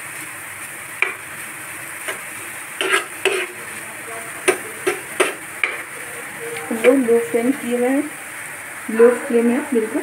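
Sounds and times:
vegetables sizzling in a pan: 0.0 - 10.0
spoon scraping and knocking pan: 1.0 - 1.3, 2.0 - 3.6, 4.4 - 5.9.

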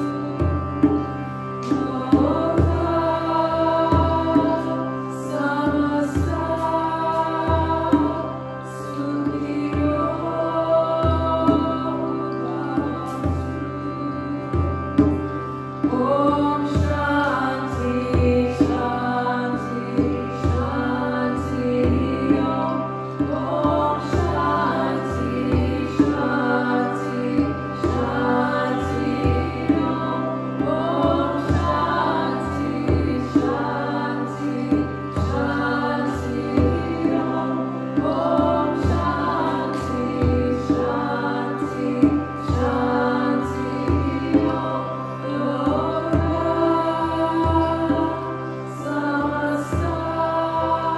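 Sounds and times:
sustained drone: 0.0 - 50.9
woman singing: 0.0 - 50.9.

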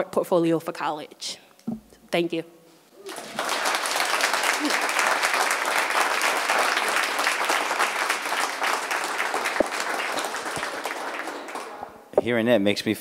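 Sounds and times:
group applauding: 3.0 - 12.1.

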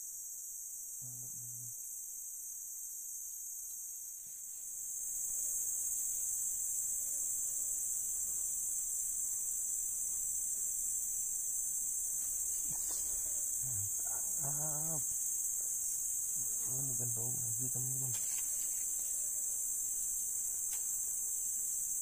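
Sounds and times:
forest insect chorus shrilling: 11.9 - 19.9
person's short vocal sound: 12.7 - 15.1.

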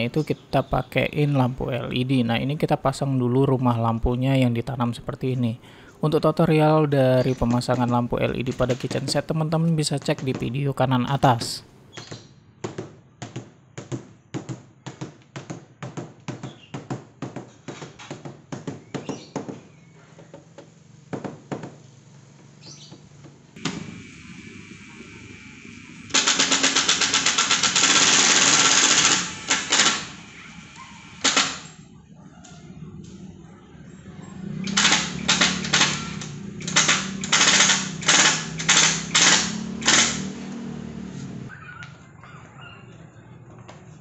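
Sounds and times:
power tool rattling: 22.2 - 31.8, 34.4 - 41.5.

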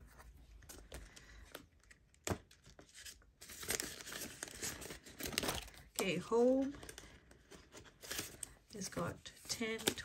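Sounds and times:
paper and plastic rustling: 1.8 - 10.0.

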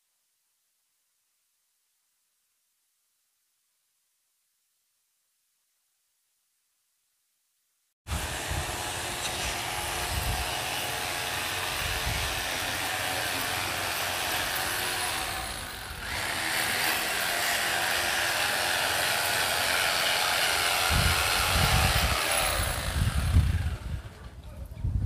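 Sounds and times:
power tool on masonry: 8.1 - 24.4.

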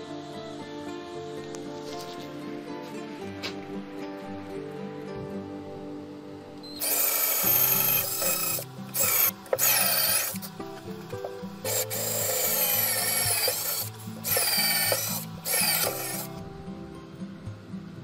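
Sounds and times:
background music: 0.0 - 18.0
cordless drill drilling into wood: 6.8 - 10.5, 11.6 - 16.3.

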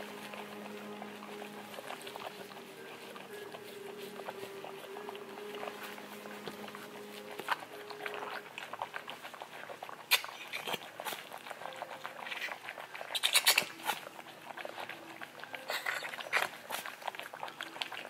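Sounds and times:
gloves and towel rustling: 0.0 - 16.9
puppy squeaking: 10.1 - 10.9.

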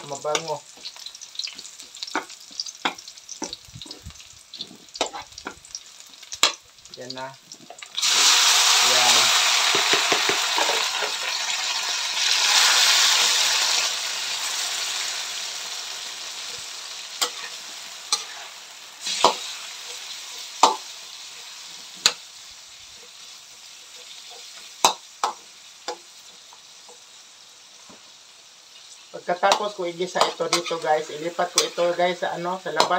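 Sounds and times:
pork sizzling in a wok: 0.0 - 32.9
metal spatula scraping wok: 0.3 - 5.6, 12.2 - 22.3, 29.5 - 32.9.

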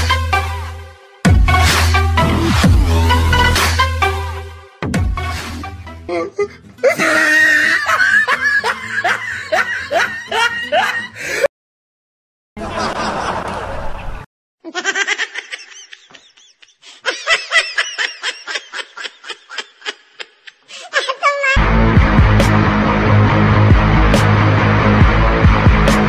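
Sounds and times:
person laughing: 6.0 - 11.5, 12.6 - 21.6.

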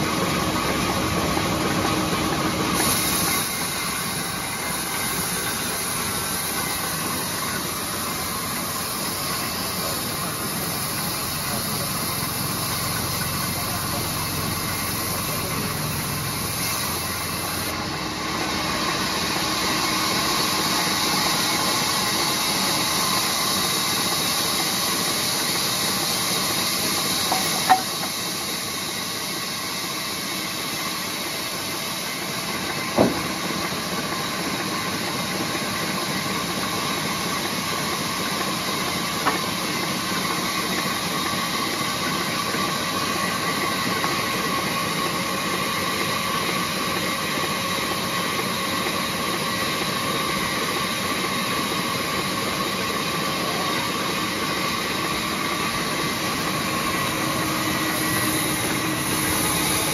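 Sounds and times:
sharp knocks: 33.0 - 33.4.

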